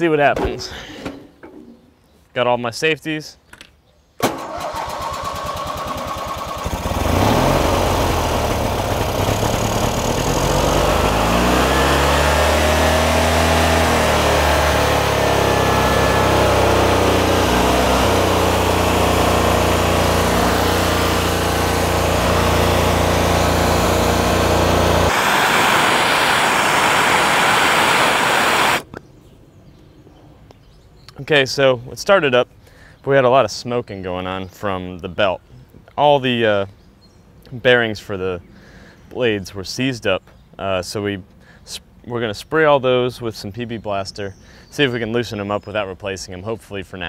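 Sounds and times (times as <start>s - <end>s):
mower engine starting and running: 4.2s - 28.9s
rushing hiss: 25.1s - 28.9s.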